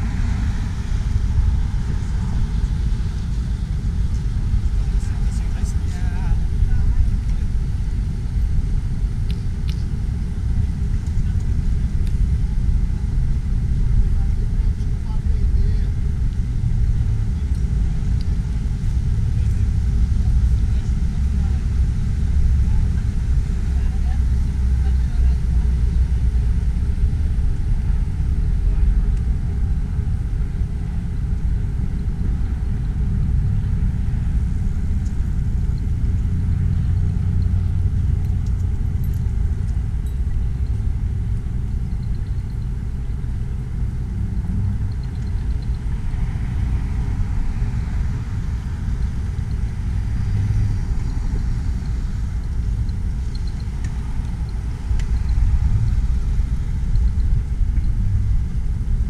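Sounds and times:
low rumble of outdoor noise: 0:00.0 - 0:59.0.

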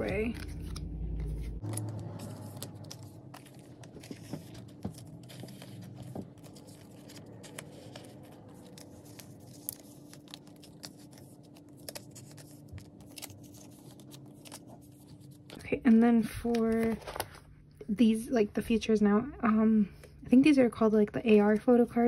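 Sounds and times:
plastic sleeves crinkling: 0:00.0 - 0:17.5.

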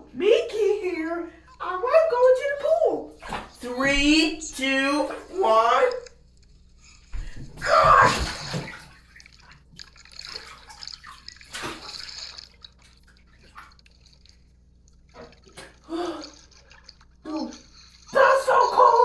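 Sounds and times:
water sloshing: 0:00.8 - 0:19.0
person splashing into pool: 0:07.1 - 0:19.0.

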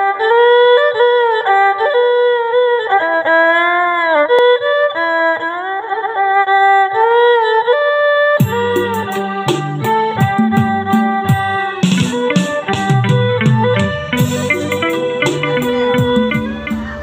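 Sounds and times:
sliding melody of held notes: 0:08.4 - 0:17.0.

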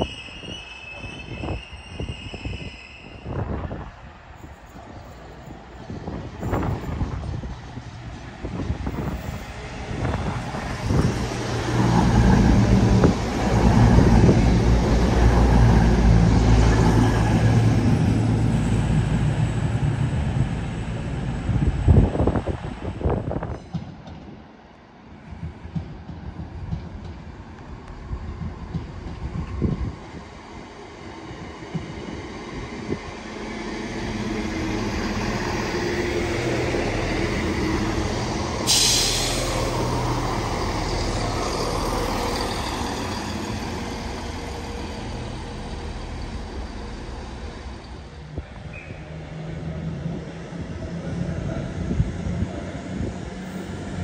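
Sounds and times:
diesel train engine: 0:00.0 - 0:54.0
air hiss: 0:38.5 - 0:40.4.

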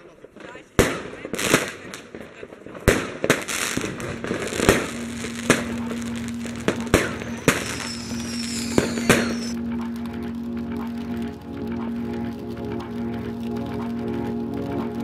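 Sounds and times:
fireworks bangs: 0:00.2 - 0:09.6.

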